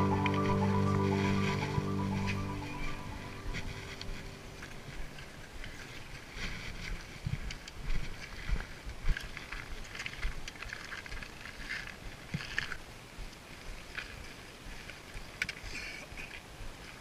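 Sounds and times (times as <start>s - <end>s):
low rumble: 0.0s - 5.7s.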